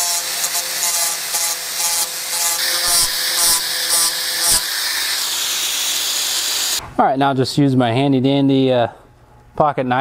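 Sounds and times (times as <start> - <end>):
angle grinder sanding plastic: 0.0 - 6.8.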